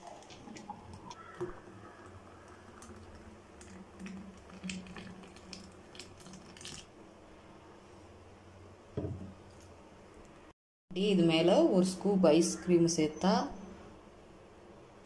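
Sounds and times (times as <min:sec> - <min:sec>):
liquid trickling into glass: 0:02.0 - 0:06.9.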